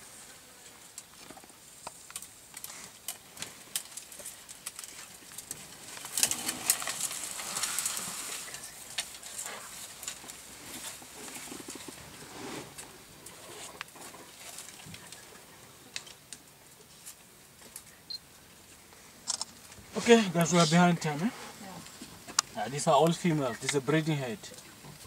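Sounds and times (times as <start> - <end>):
leaves rustling: 0.0 - 25.0
twigs snapping: 1.8 - 8.1.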